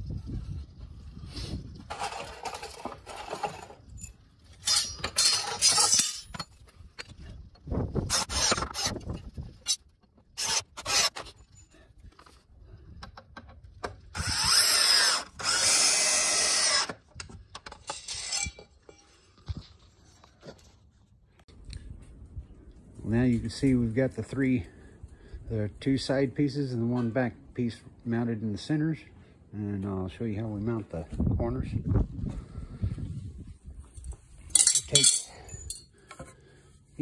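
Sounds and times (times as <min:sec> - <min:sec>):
cordless drill driving screws: 0:08.1 - 0:09.0, 0:10.4 - 0:11.3, 0:14.1 - 0:17.0.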